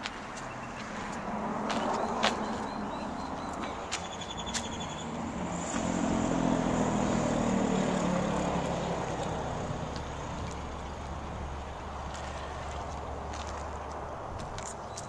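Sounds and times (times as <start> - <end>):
vehicle driving past: 4.1 - 13.4.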